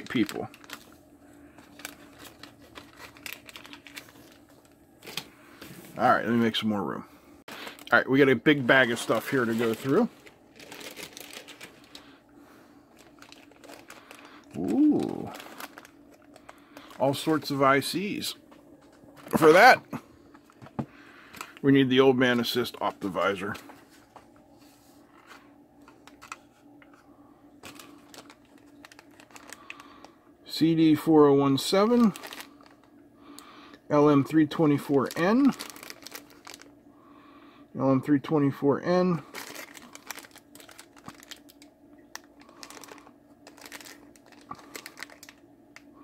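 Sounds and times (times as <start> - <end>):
plastic bag rustling and clicking: 0.0 - 5.8, 7.5 - 12.1, 12.9 - 17.8, 25.1 - 27.0, 27.6 - 30.1, 32.0 - 32.9, 34.9 - 36.7, 39.3 - 45.9
steady low hum: 0.0 - 46.0.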